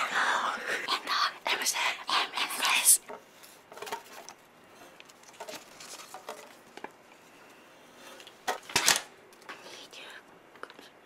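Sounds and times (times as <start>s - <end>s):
paper rustling: 5.0s - 6.8s.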